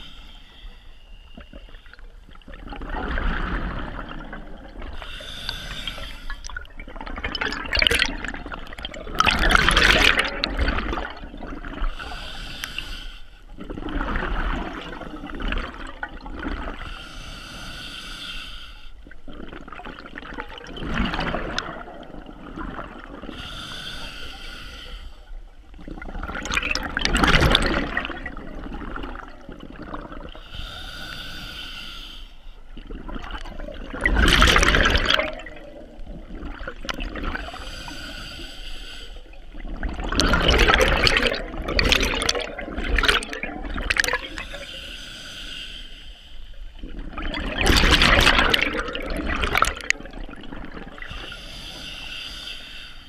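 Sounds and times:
exhaled bubbles rushing: 0:01.4 - 0:05.0, 0:05.9 - 0:11.9, 0:13.6 - 0:16.8, 0:19.3 - 0:23.3, 0:25.8 - 0:30.4, 0:32.8 - 0:37.6, 0:39.5 - 0:44.6, 0:46.8 - 0:51.3
regulator hissing inhalation: 0:05.0 - 0:06.5, 0:12.0 - 0:13.4, 0:16.9 - 0:18.9, 0:23.4 - 0:25.2, 0:30.4 - 0:32.5, 0:37.5 - 0:39.3, 0:44.3 - 0:46.5, 0:51.1 - 0:53.0.

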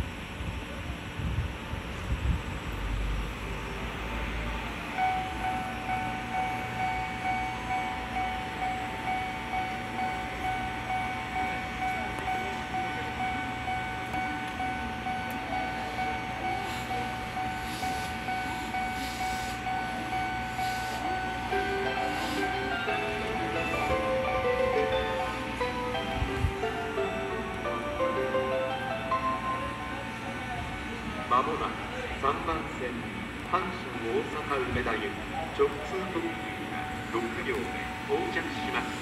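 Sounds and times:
steady ringing tone: 0:04.8 - 0:31.0
level crossing bell ringing: 0:05.0 - 0:30.5.

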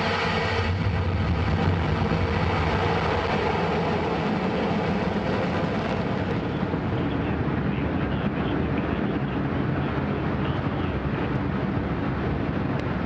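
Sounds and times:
rocket engines roaring: 0:00.0 - 0:13.0.

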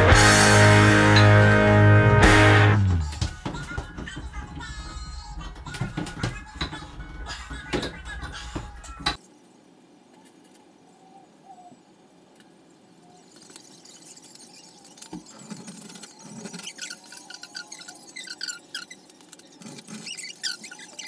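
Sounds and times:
short high squeaks: 0:13.3 - 0:21.0.

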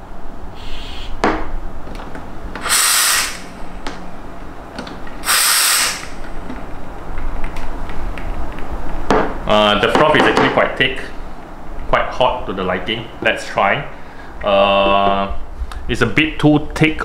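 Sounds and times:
steam wand hissing blasts: 0:02.6 - 0:03.5, 0:05.2 - 0:06.2.

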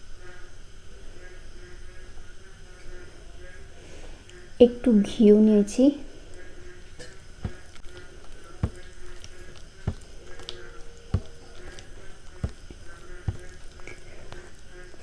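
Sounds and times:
wet squishing of food: 0:07.0 - 0:15.0.

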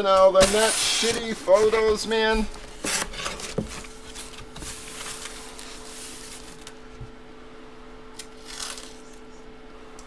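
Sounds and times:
faint steady hum: 0:00.0 - 0:10.0
cardboard box and paper rustling: 0:00.4 - 0:06.8.

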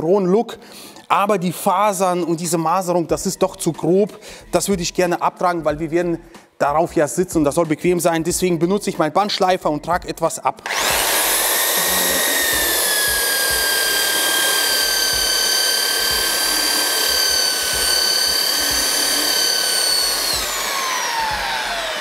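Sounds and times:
belt sander on wood: 0:10.6 - 0:22.0.

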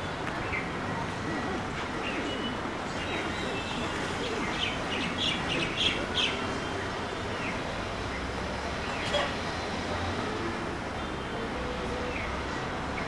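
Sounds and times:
steady background noise: 0:00.0 - 0:13.0
birds chirping: 0:02.0 - 0:08.2.

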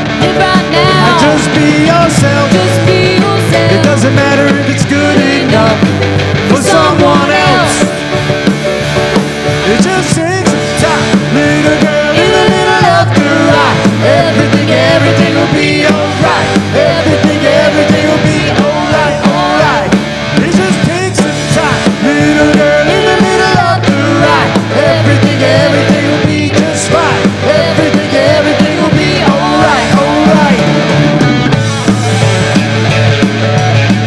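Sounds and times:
woman singing: 0:00.0 - 0:05.8, 0:06.5 - 0:08.0, 0:10.8 - 0:20.0, 0:21.8 - 0:30.6
country rock band playing: 0:00.0 - 0:34.0.

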